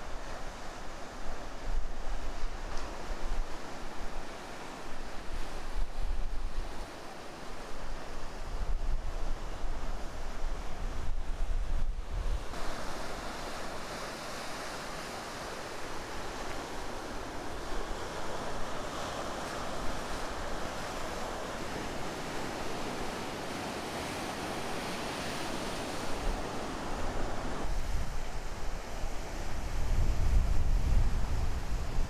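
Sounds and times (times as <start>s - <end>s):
wind rumbling on microphone: 7.9s - 12.7s, 25.8s - 32.0s
waves breaking: 12.4s - 29.7s.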